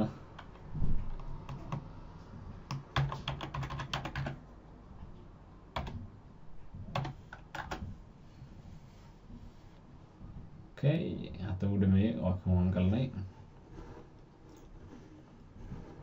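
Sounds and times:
keyboard keys typing: 0:00.4 - 0:01.9, 0:02.7 - 0:04.4, 0:05.8 - 0:06.0, 0:06.9 - 0:07.9.

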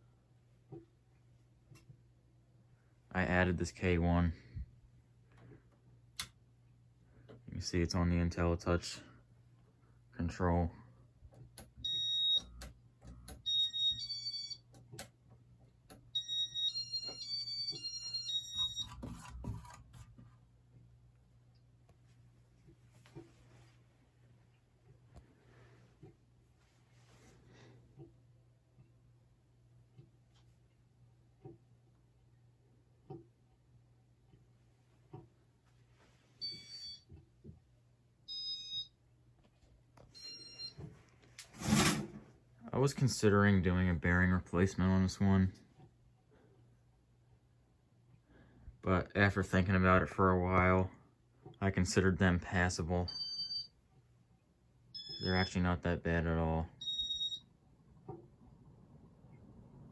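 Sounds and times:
short electronic beeping tones: 0:55.0 - 0:55.5, 0:56.8 - 0:57.4
short electronic beeps: 0:55.0 - 0:55.5.

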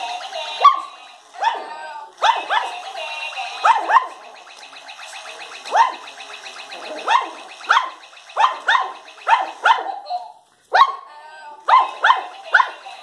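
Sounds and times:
puppy yapping: 0:07.1 - 0:11.0, 0:11.7 - 0:12.7.

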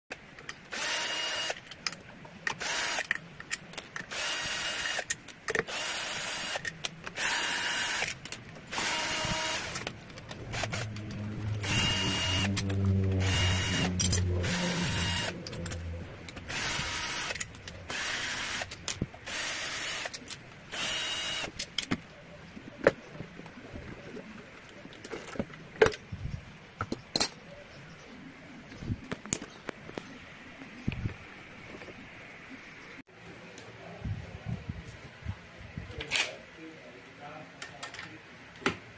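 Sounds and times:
metal parts clicking and knocking: 0:01.6 - 0:04.2, 0:08.0 - 0:19.4, 0:20.0 - 0:20.6
cordless drill whining: 0:05.7 - 0:06.6, 0:08.7 - 0:09.8, 0:10.5 - 0:15.5
low hum: 0:08.2 - 0:19.3.

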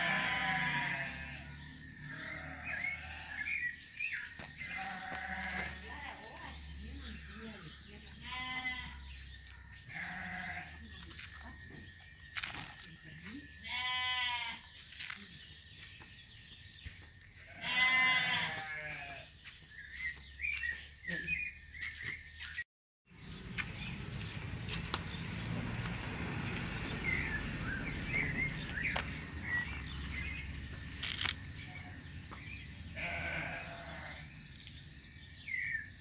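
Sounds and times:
drawn-out animal cries: 0:00.0 - 0:03.8, 0:04.4 - 0:11.6, 0:13.0 - 0:14.7, 0:17.4 - 0:19.2, 0:32.9 - 0:34.4.

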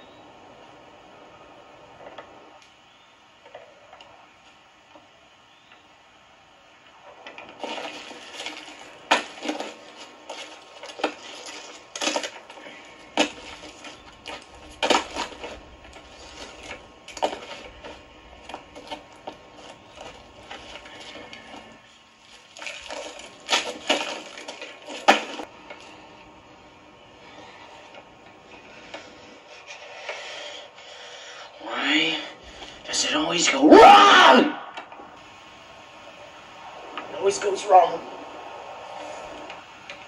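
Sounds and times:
rotten wood cracking underfoot: 0:07.2 - 0:25.9.

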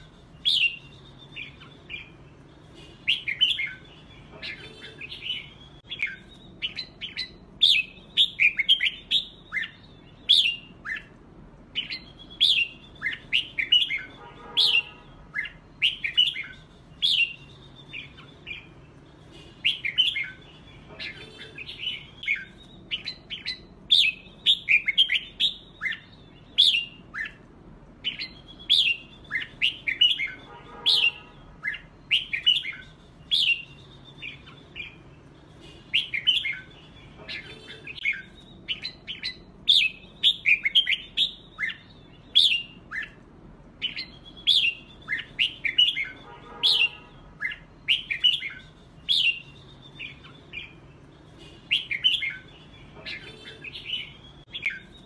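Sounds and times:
birds warbling: 0:00.0 - 0:55.0.

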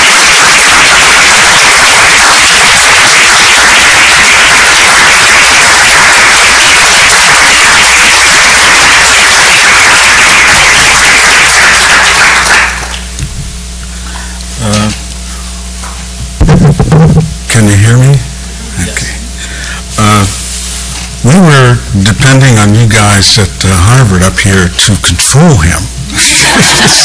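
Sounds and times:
audience applauding: 0:00.0 - 0:13.2, 0:26.2 - 0:27.0.

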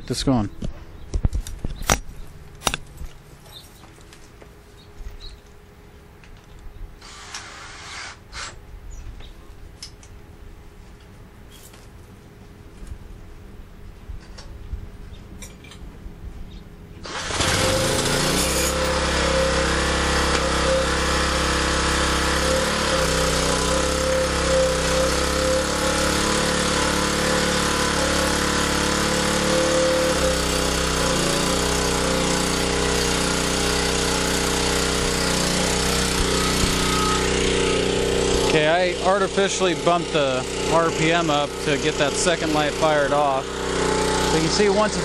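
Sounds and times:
portable generator engine running: 0:17.0 - 0:45.0.

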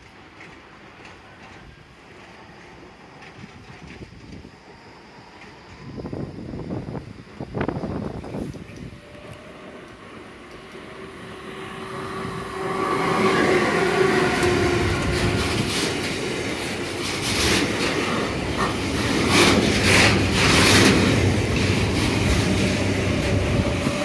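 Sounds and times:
train wheels clattering over rail joints: 0:00.0 - 0:04.6, 0:13.7 - 0:24.0
electric locomotive whine: 0:00.0 - 0:24.0.

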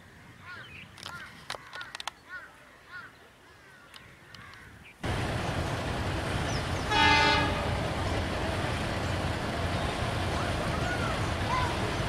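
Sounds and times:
faint bird calls: 0:00.0 - 0:05.0
steady outdoor rumble: 0:05.0 - 0:12.0
train horn blast: 0:06.8 - 0:07.9.

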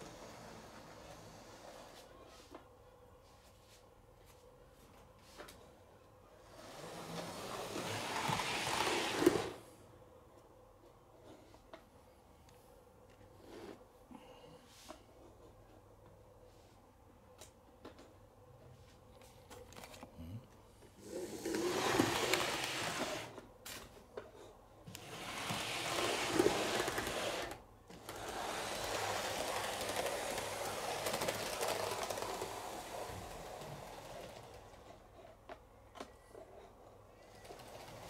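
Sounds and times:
model train whirring: 0:06.5 - 0:09.6, 0:21.0 - 0:23.4, 0:24.9 - 0:35.1, 0:37.3 - 0:38.0.

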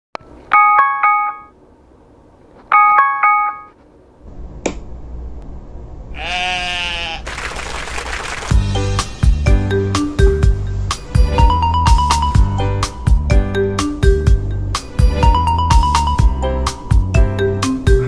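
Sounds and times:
phone alarm chiming: 0:02.7 - 0:03.7.

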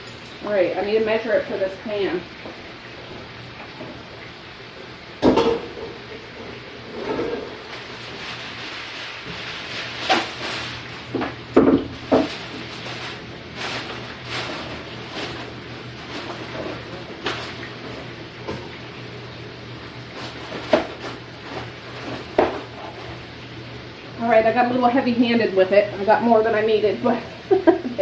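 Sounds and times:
sheet rustling and tearing: 0:07.0 - 0:11.1, 0:12.0 - 0:17.6.

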